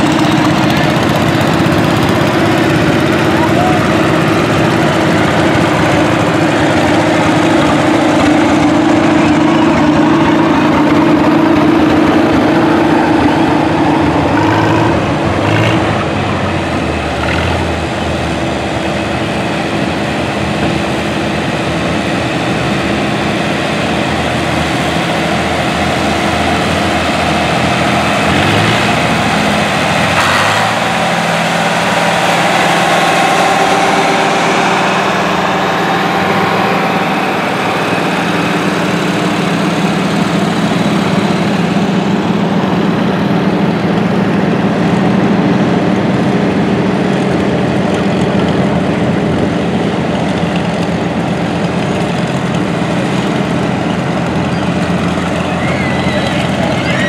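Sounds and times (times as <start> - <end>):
tractor engines running: 0.0 - 57.0.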